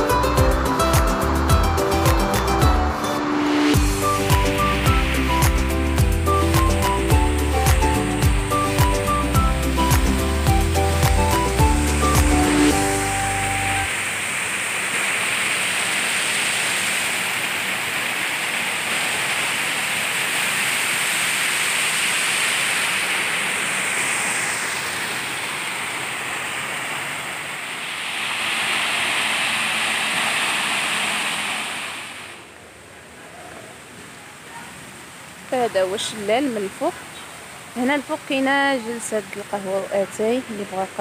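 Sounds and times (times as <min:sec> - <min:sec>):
waterfall rushing: 0:00.0 - 0:32.7.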